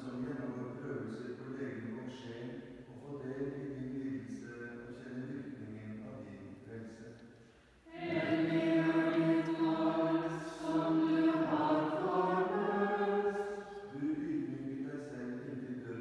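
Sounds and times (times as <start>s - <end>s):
voices chanting: 7.9s - 14.8s.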